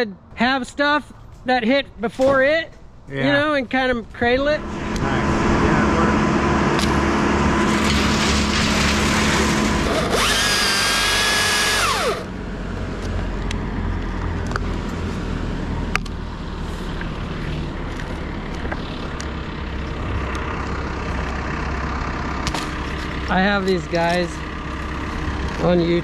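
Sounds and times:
low steady engine hum: 0:02.8 - 0:26.0
chainsaw cutting with high whine: 0:04.6 - 0:12.3.

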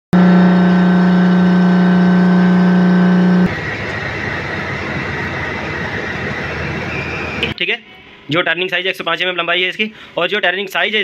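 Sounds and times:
loud steady humming tone: 0:00.1 - 0:07.6
lathe machining noise: 0:00.2 - 0:07.6
faint high whine: 0:00.2 - 0:08.2.

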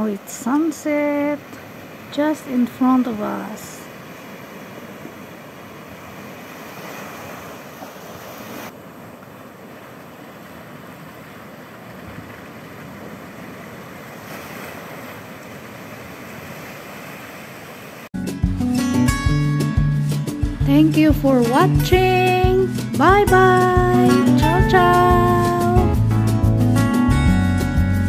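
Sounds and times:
sea waves washing up a beach: 0:00.0 - 0:18.1.

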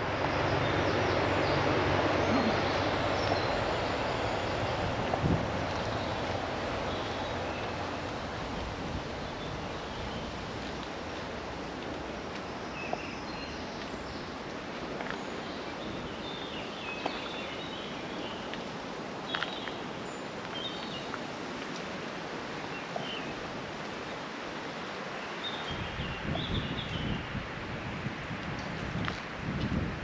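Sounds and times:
wind buffeting microphone: 0:00.0 - 0:12.3, 0:25.7 - 0:30.0
rustle of leaves: 0:00.0 - 0:30.0.

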